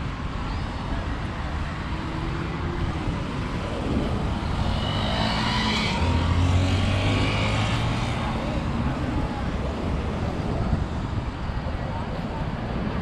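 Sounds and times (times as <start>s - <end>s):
cars and motorcycles passing: 0.0s - 13.0s.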